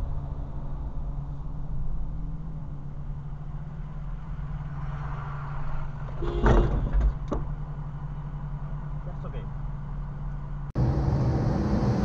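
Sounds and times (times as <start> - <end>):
car engine running: 0.0 - 4.8, 5.9 - 12.0.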